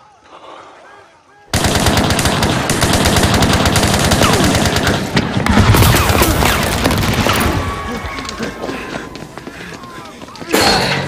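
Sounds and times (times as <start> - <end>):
heavy automatic gunfire: 1.5 - 7.9.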